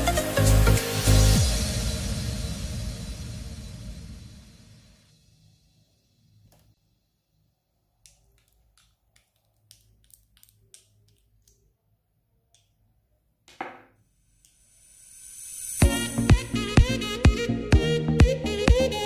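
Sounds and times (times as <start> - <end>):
plastic tube clicks and taps: 8.0 - 11.6.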